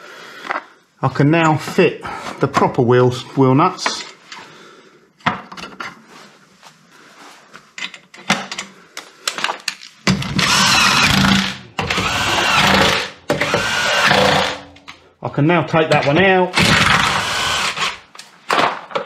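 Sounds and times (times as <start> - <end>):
power drill running: 10.3 - 14.8, 16.6 - 18.0.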